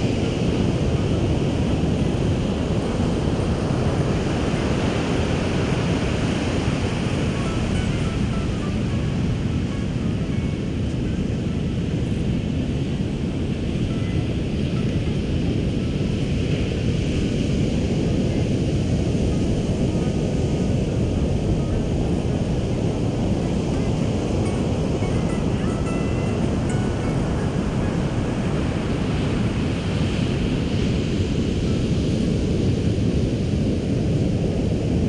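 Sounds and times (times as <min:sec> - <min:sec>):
ocean surf rushing: 0:00.0 - 0:35.0
wind buffeting microphone: 0:00.0 - 0:35.0.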